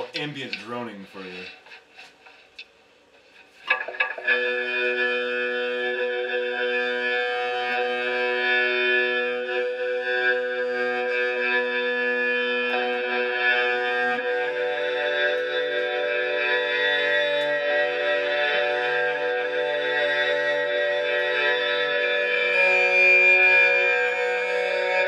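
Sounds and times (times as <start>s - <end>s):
bowed bucket cello drone: 3.7s - 11.2s.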